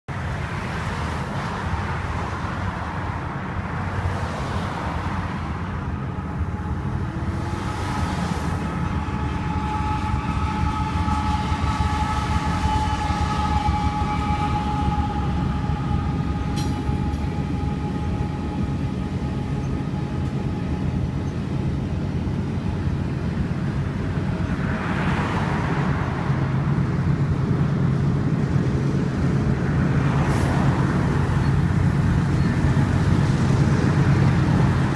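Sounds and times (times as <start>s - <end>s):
train rumbling on rails: 0.1s - 34.9s
rushing noise: 0.2s - 34.9s.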